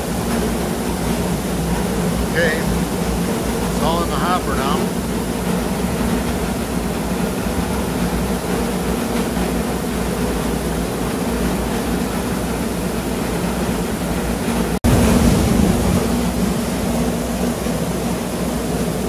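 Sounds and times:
rice milling machine running: 0:00.0 - 0:19.0.

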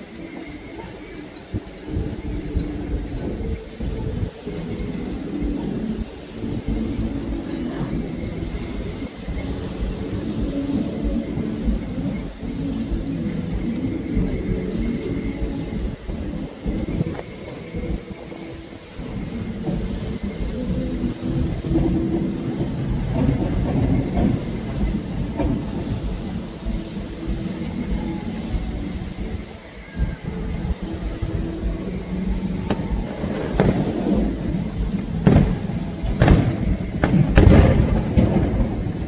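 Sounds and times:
low rumble of firework bursts: 0:00.0 - 0:39.0
sharp firework bangs: 0:35.2 - 0:39.0.

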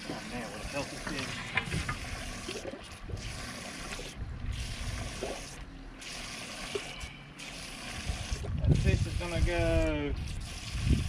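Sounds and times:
water trickling and sloshing: 0:00.0 - 0:09.4.

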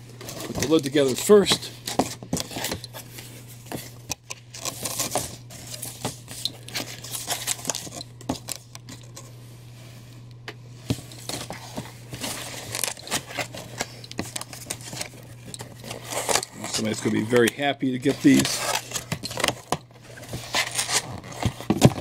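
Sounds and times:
cardboard being folded: 0:10.9 - 0:22.0.

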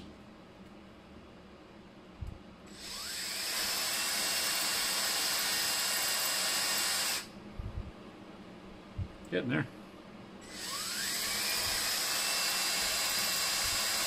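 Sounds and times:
cordless drill drilling: 0:02.7 - 0:07.3, 0:10.4 - 0:14.0.

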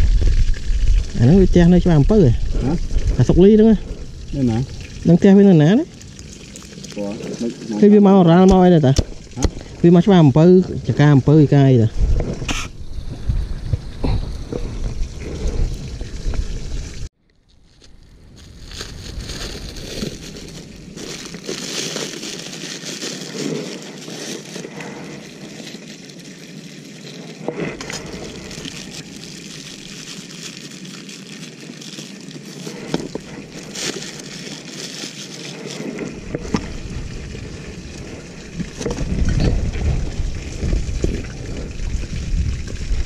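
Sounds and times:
plastic bag crinkling: 0:17.3 - 0:43.0.

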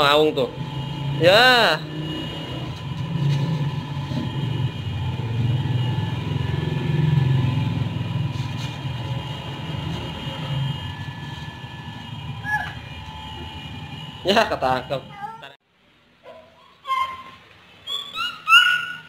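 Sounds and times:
vehicle engine running: 0:00.0 - 0:15.5.

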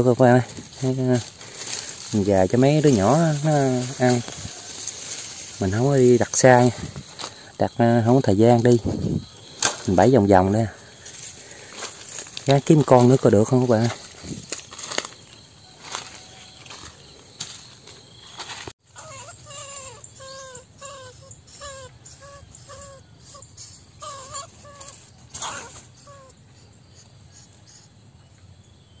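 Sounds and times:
rustling: 0:00.3 - 0:07.5, 0:10.9 - 0:21.0
short pitched animal calls: 0:18.9 - 0:27.9.

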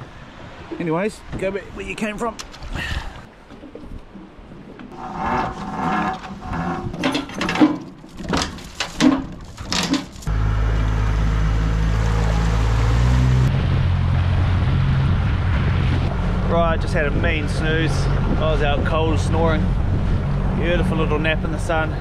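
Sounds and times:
outboard motor running: 0:10.2 - 0:15.2.

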